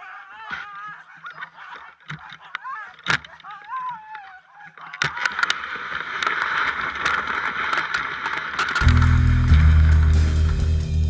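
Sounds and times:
sled runners sliding over snow: 5.3s - 10.1s.

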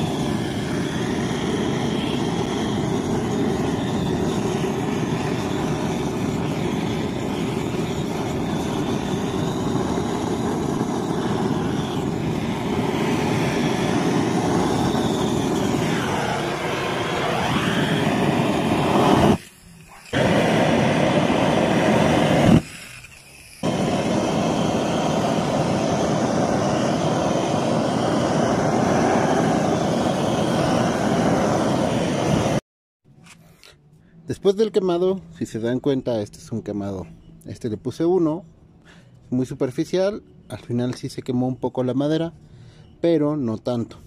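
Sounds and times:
gas torch flame blowing: 0.0s - 32.6s.

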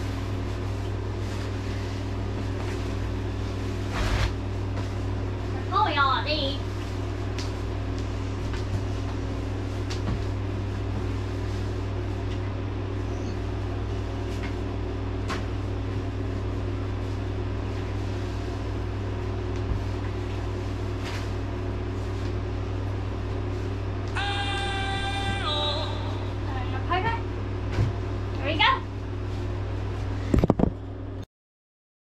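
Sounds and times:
air conditioner humming: 0.0s - 31.3s.

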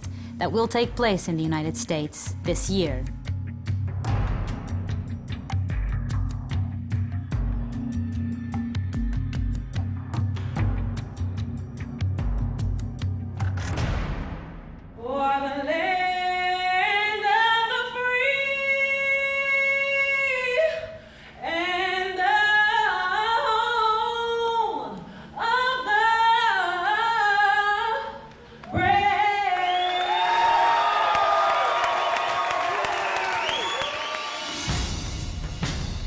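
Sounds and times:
crowd cheering: 28.8s - 34.9s.

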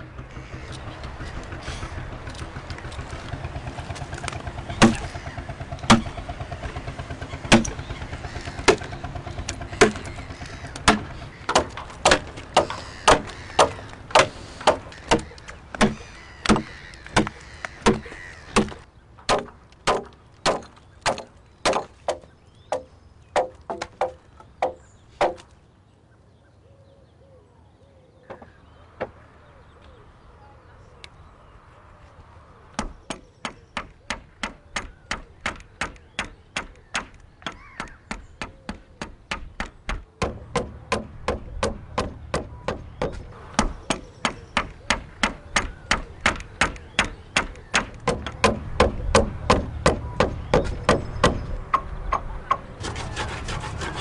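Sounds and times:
hand tool striking wood: 4.8s - 5.1s, 7.5s - 7.8s, 9.5s - 10.1s, 10.8s - 25.5s, 32.8s - 53.8s.

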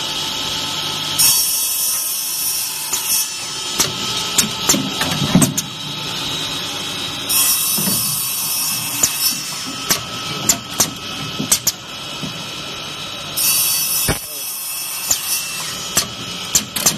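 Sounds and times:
sharp mechanical clicks and knocks: 2.9s - 5.7s, 9.0s - 12.4s, 15.1s - 16.9s.

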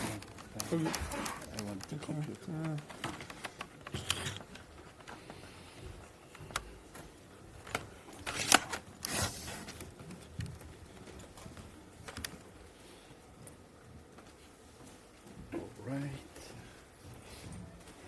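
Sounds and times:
clicks and knocks of cable handling: 0.0s - 5.4s, 6.3s - 9.1s, 9.7s - 12.5s.

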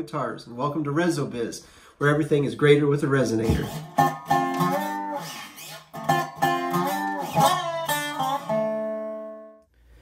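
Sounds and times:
guitar picking single notes: 3.5s - 9.7s.

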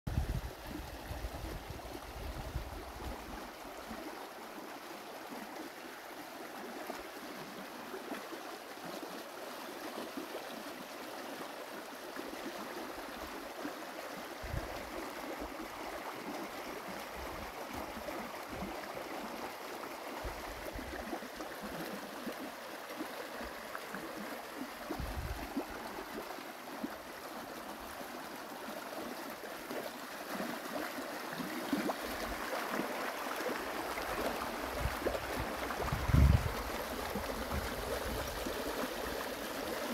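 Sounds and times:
stream babbling over rocks: 0.2s - 39.9s
low microphone rumbles: 34.8s - 38.3s.

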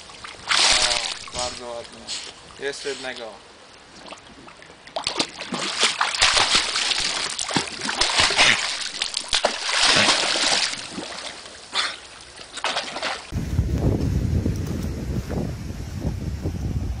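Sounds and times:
dog splashing in water: 0.2s - 1.5s, 5.0s - 13.3s.

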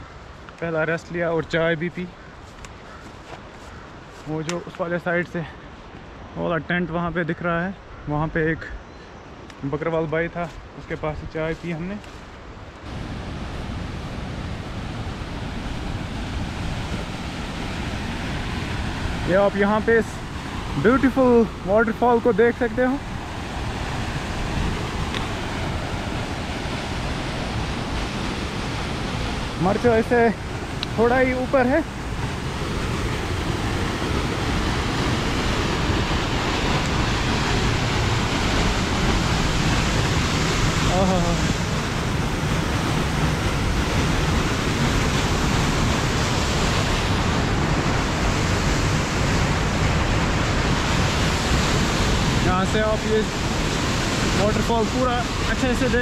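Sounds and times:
waterfall rushing: 12.8s - 56.0s
wind buffeting microphone: 12.8s - 56.0s.

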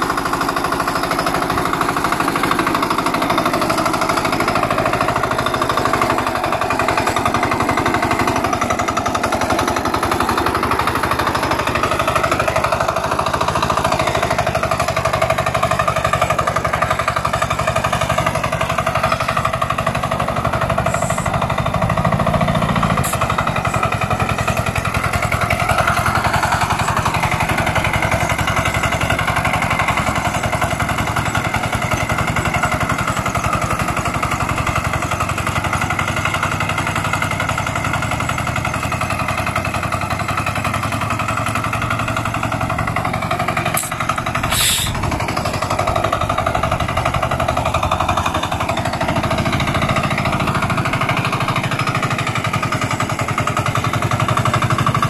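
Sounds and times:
hand tractor engine chugging: 0.0s - 55.0s.

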